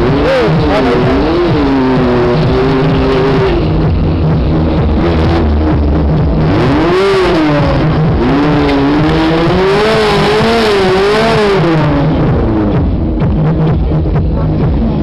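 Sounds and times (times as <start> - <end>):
engine revving: 0.0 - 15.0
loud rushing noise: 0.0 - 15.0.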